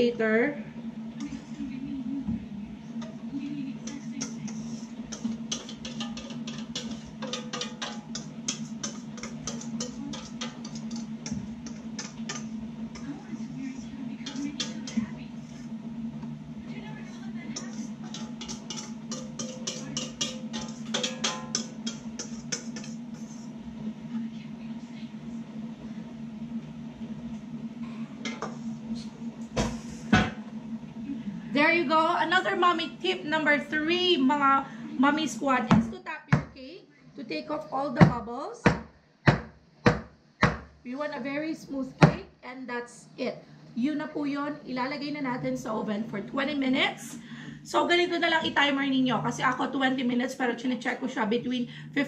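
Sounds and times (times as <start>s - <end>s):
low steady hum: 0.0s - 52.0s
utensil scraping metal bowl: 2.9s - 16.4s, 17.1s - 24.3s, 28.2s - 30.4s
metal tin knocking on counter: 5.5s - 12.4s, 18.1s - 22.9s.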